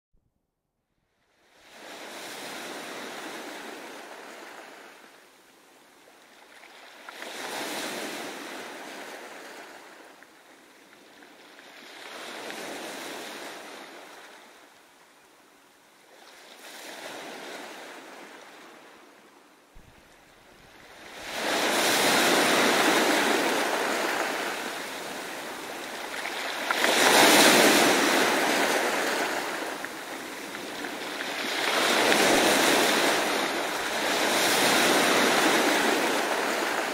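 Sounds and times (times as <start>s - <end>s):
ocean surf breaking on beach: 1.6s - 5.2s, 6.5s - 10.2s, 19.8s - 36.9s.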